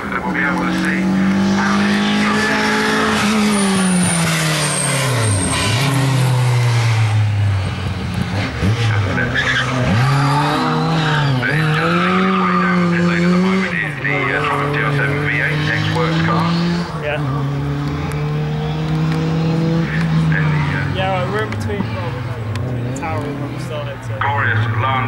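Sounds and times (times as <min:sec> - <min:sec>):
rally car engine revving: 0:00.0 - 0:25.0
tyres skidding and squealing: 0:00.0 - 0:25.0.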